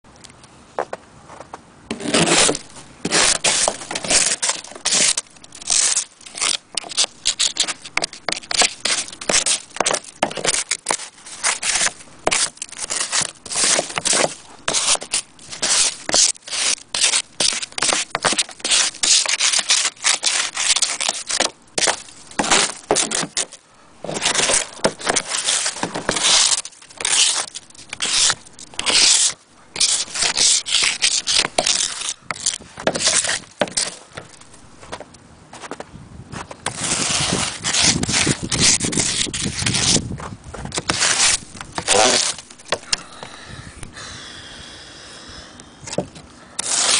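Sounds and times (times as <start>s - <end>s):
snow scraped off windscreen: 36.3s - 40.1s, 46.6s - 46.9s.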